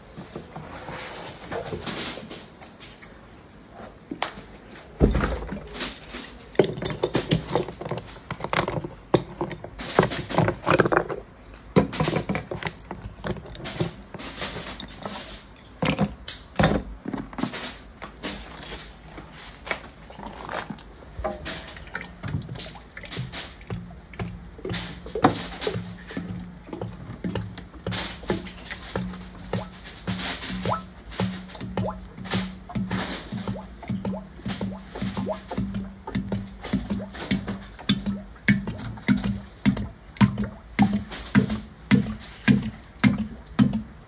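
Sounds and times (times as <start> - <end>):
irregular clattering knocks: 21.2 - 44.0.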